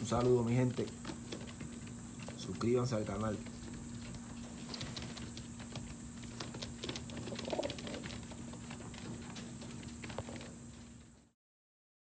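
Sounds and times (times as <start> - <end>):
pigeon cooing: 0.0 - 10.8
low hum and hiss: 0.0 - 11.4
claws tapping on wooden floor: 0.1 - 2.5.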